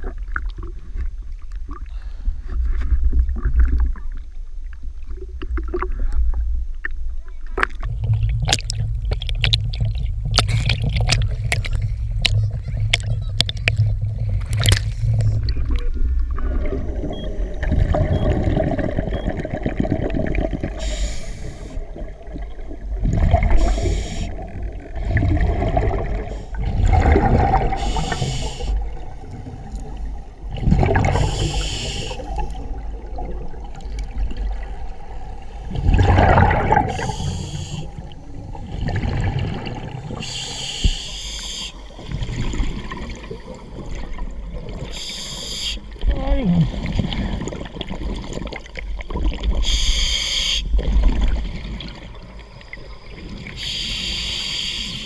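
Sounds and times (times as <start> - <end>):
exhaled bubbles rushing: 7.6 - 40.5, 41.8 - 45.0, 46.0 - 49.8, 50.7 - 53.8
water slapping camera housing: 8.4 - 15.0
diver breathing through regulator: 20.7 - 21.8, 23.5 - 24.4, 27.7 - 28.9, 31.1 - 32.7, 36.8 - 38.1, 40.2 - 41.9, 44.9 - 45.9, 49.6 - 50.8, 53.6 - 55.0.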